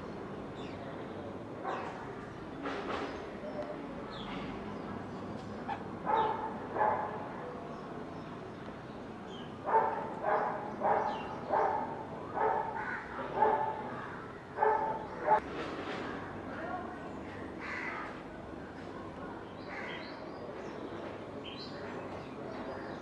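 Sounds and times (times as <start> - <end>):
crow cawing: 12.8 - 13.2.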